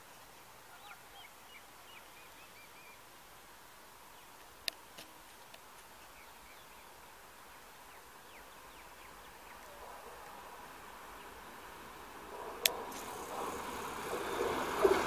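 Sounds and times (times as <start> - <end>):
background hiss: 0.0 - 15.0
faint bird chirps: 0.6 - 3.1
faint ticks: 4.4 - 5.9.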